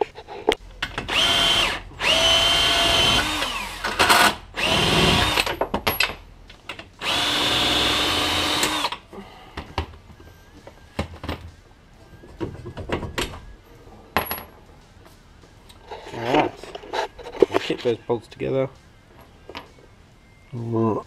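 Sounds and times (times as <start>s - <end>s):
cordless drill whining: 1.1s - 5.5s, 7.0s - 9.0s.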